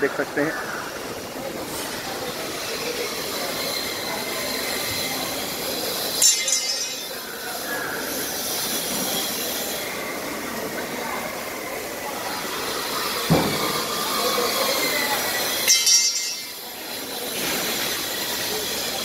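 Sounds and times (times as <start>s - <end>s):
clatter and hum of workshop: 0.0s - 19.0s
sharp metal clank: 15.7s - 16.6s.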